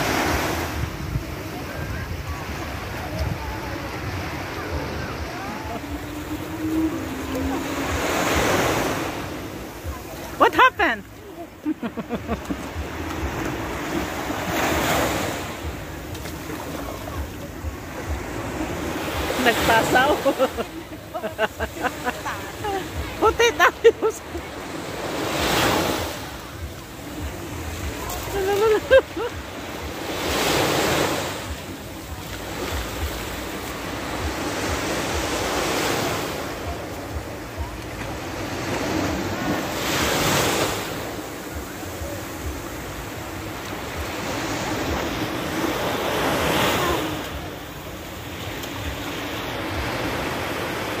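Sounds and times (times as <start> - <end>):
wind rumble on microphone: 0.0 - 8.4
sea waves breaking on sand: 0.0 - 51.0.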